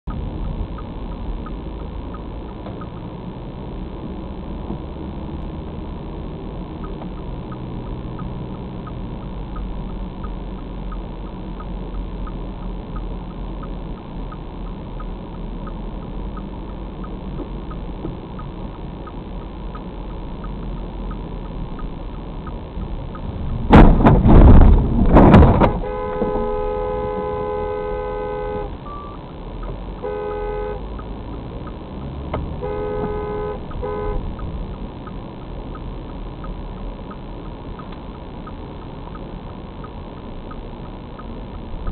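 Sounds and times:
road and engine hum: 0:00.0 - 0:41.9
turn-signal clicker ticking: 0:00.1 - 0:23.8, 0:25.7 - 0:41.9
vehicle crunching scraping crash: 0:23.6 - 0:26.5
car horn: 0:25.5 - 0:29.2, 0:30.0 - 0:31.0, 0:32.4 - 0:34.5.

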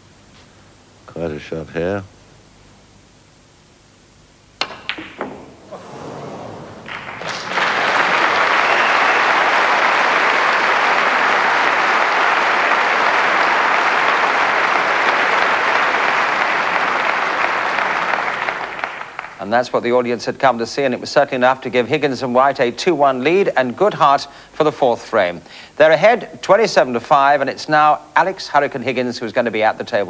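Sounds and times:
balls colliding clicks: 0:04.6 - 0:05.8, 0:06.6 - 0:09.0
cue striking ball: 0:04.6 - 0:17.2
audience applauding: 0:05.7 - 0:19.4.

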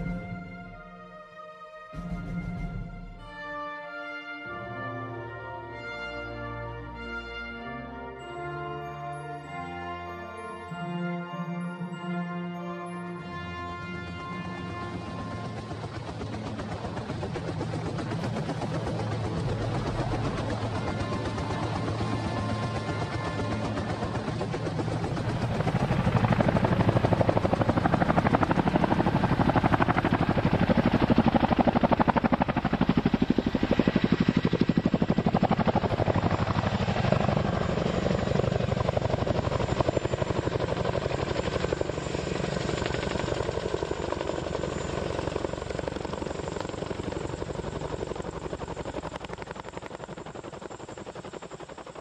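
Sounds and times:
helicopter rotors beating: 0:00.0 - 0:01.3, 0:01.9 - 0:52.0.

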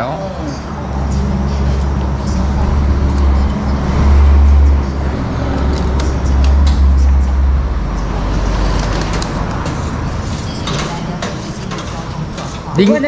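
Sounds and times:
heavy vehicle engine drone: 0:00.0 - 0:12.8
road traffic: 0:00.0 - 0:13.0.

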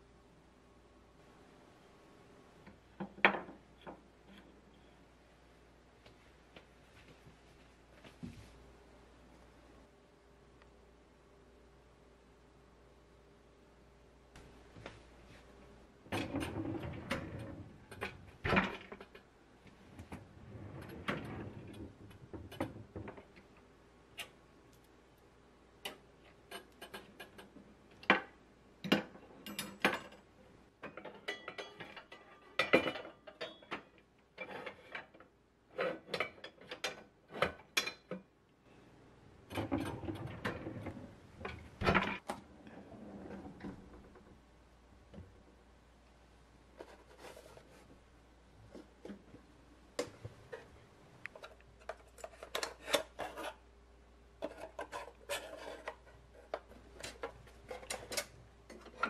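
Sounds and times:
drawers sliding open and shut: 0:16.0 - 0:19.2, 0:19.9 - 0:23.3, 0:39.4 - 0:44.4, 0:54.4 - 0:59.0
metal pots and pans clinking: 0:30.9 - 0:33.8.

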